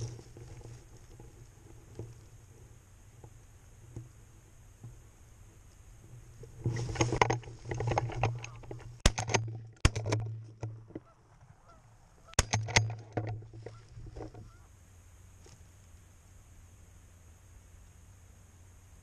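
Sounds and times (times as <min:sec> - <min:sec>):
sharp cracks: 0:07.2 - 0:13.8
geese honking: 0:10.8 - 0:12.4, 0:13.6 - 0:14.8.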